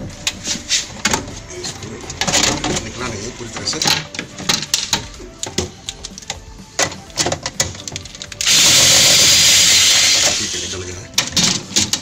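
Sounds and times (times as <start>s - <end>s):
plastic frame clicks and knocks: 2.0s - 8.4s, 11.1s - 12.0s
cordless drill running: 8.4s - 10.8s.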